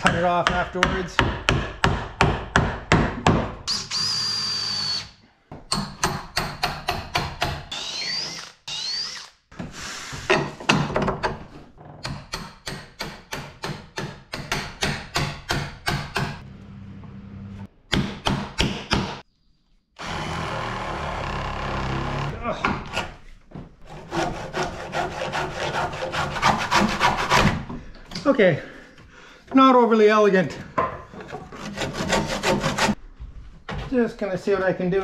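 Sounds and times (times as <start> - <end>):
power drill running: 3.7 - 5.1, 7.7 - 9.4, 20.0 - 22.3.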